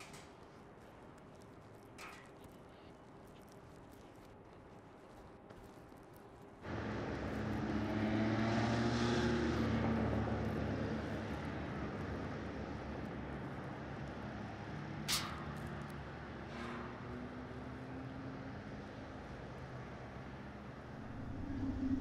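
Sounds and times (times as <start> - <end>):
engine rumble: 6.6 - 22.0.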